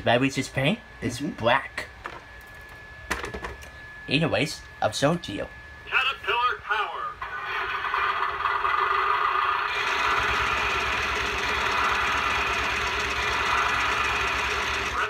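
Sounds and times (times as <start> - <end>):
toy electronic engine sound: 7.2 - 15.0.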